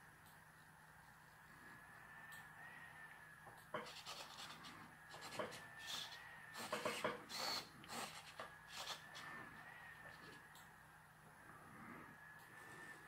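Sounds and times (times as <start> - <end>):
faint steady whine: 0.0 - 13.0
servo motors whirring: 3.9 - 9.4.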